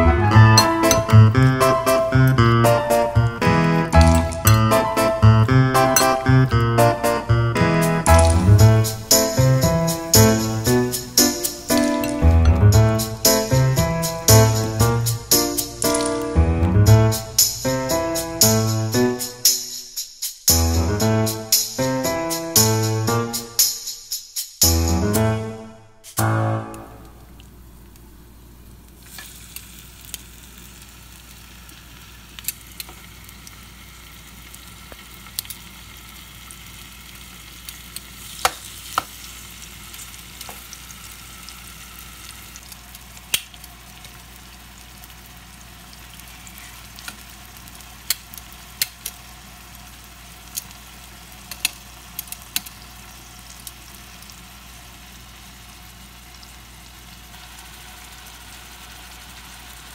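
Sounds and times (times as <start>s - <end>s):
chicken sizzling in hot oil: 7.6s - 16.3s, 27.7s - 59.9s.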